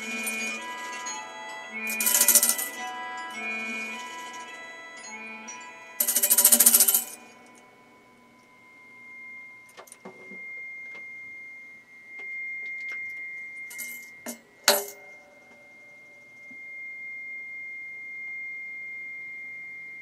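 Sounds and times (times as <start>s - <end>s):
steady high tone: 0.0s - 20.0s
tambourine shaking: 1.8s - 2.9s, 6.0s - 7.3s, 13.7s - 15.0s
tambourine jingles clinking: 1.8s - 3.5s, 6.0s - 7.4s, 13.7s - 15.4s.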